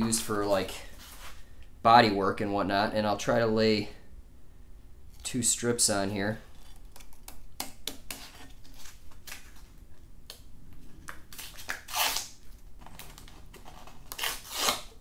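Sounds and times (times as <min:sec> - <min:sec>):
adhesive strip rasping off roll: 0:14.1 - 0:14.9.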